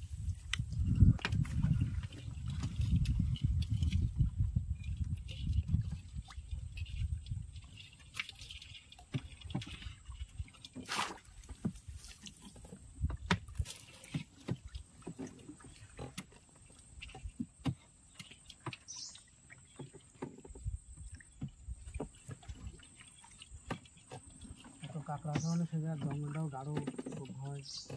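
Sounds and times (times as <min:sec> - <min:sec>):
knocks and taps in wooden boat: 0:09.0 - 0:09.9, 0:10.6 - 0:22.8, 0:23.6 - 0:27.9.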